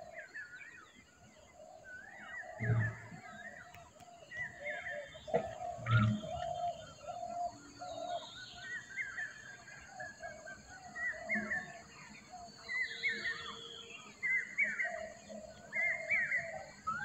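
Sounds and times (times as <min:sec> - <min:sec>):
low repeated bird call: 0:00.0 - 0:17.0
high warbling bird chirps: 0:02.4 - 0:09.4
low thump: 0:02.6 - 0:03.2.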